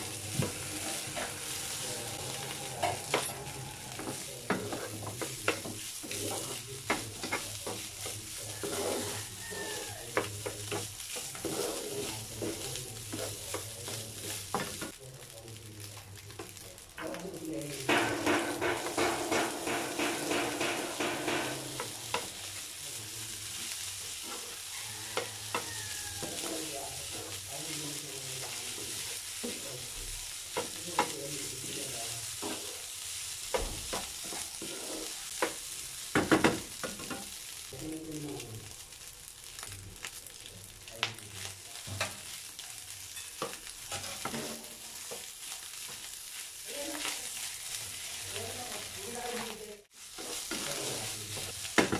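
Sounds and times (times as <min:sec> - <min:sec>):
wooden spatula scraping pan: 0:00.0 - 0:14.9, 0:17.9 - 0:22.4, 0:23.4 - 0:29.7, 0:30.5 - 0:32.8, 0:33.8 - 0:35.8, 0:43.1 - 0:46.1, 0:47.0 - 0:51.9
rice sizzling in frying pan: 0:00.0 - 0:51.9
spatula knocking on pan: 0:17.8 - 0:22.3, 0:25.1 - 0:26.5.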